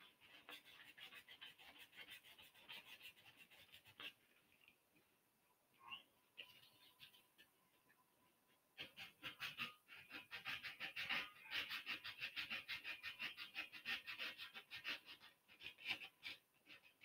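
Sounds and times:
sandpaper scratching on wood: 0.2s - 4.1s, 8.8s - 16.8s.

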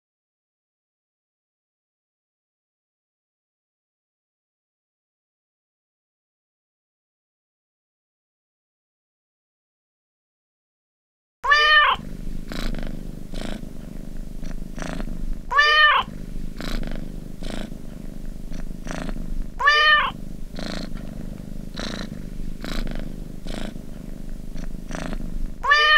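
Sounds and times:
cat meowing: 11.4s - 12.0s, 15.5s - 16.1s, 19.6s - 20.2s, 25.6s - 25.9s
cat purring: 11.4s - 25.9s.

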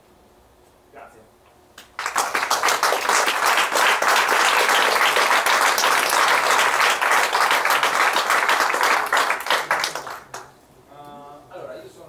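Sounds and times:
audience applauding: 1.8s - 10.5s.

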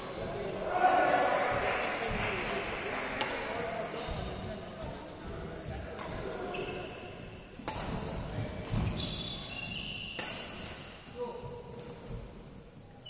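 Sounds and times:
racket hitting shuttlecock: 3.2s - 4.9s, 5.9s - 11.0s
shoes squeaking on court floor: 6.4s - 7.2s, 7.8s - 11.0s.

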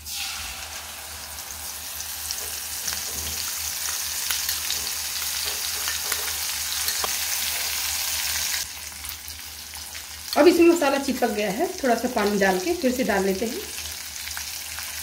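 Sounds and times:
paste sizzling in hot oil: 0.0s - 15.0s.

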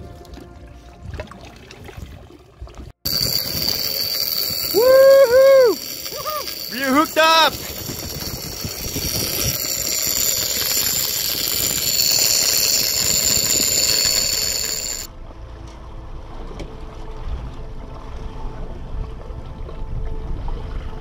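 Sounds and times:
water noise: 0.0s - 21.0s
fishing reel drag whining: 3.1s - 15.1s.

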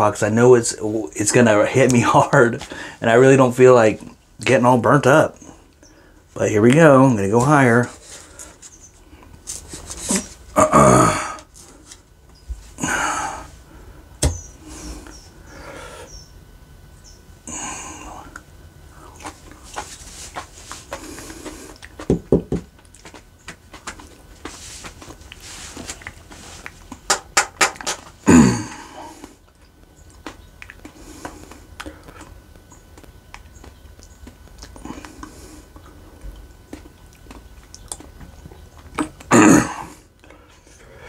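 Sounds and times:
man breathing: 2.6s - 3.0s, 12.7s - 16.2s, 17.4s - 19.2s, 28.3s - 29.4s, 39.8s - 41.0s
man clearing throat: 10.5s - 11.4s, 28.2s - 29.0s, 39.3s - 40.0s
man chewing crunchy food: 17.5s - 41.0s.

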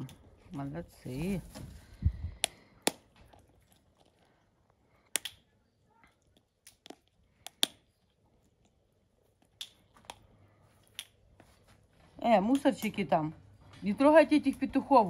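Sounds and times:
animals chewing berries: 1.6s - 12.2s.

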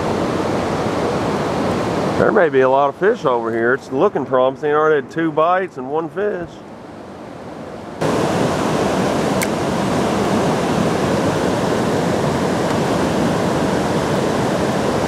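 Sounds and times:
river water rushing over rocks: 0.0s - 3.5s, 6.8s - 15.0s.

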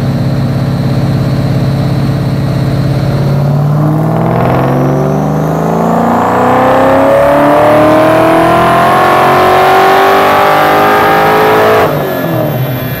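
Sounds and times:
engine exhaust revving: 0.5s - 13.0s.

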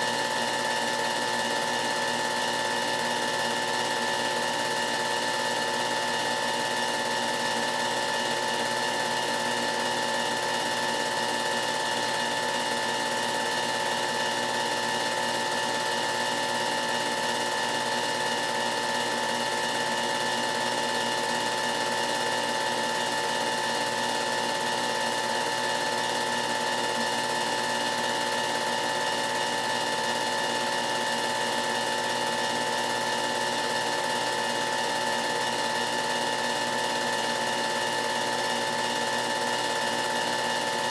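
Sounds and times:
film projector whirring: 0.0s - 40.9s.

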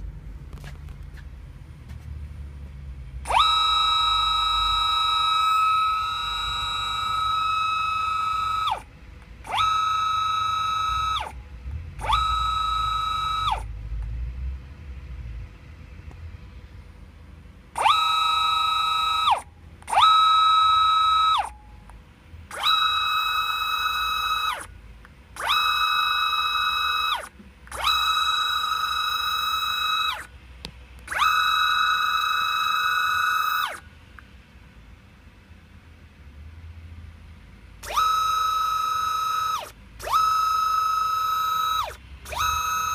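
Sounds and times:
stepper motor whine: 1.9s - 14.7s, 17.7s - 21.9s, 22.5s - 24.7s, 25.3s - 30.3s, 31.0s - 33.9s, 37.8s - 42.9s.

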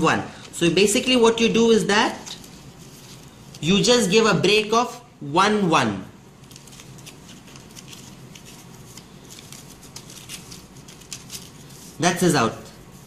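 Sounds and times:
paper rustling and scraping: 2.2s - 3.7s, 6.4s - 12.0s.

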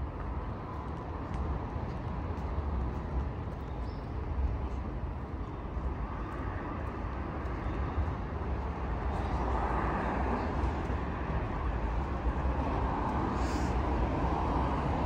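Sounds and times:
low traffic rumble: 0.0s - 15.0s
cars passing: 4.7s - 15.0s.

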